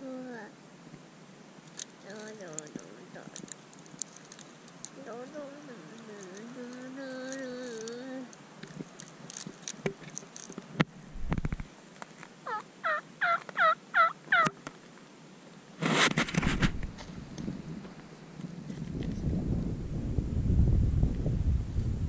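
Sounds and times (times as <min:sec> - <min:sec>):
wind rush on microphone: 0:11.0 - 0:11.7, 0:16.0 - 0:22.0
turkey yelping: 0:12.4 - 0:14.6.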